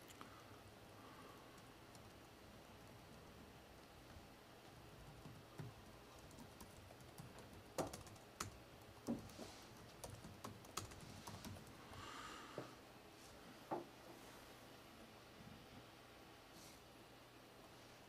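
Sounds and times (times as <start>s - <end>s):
typing on computer keyboard: 1.9s - 3.3s, 5.1s - 11.8s.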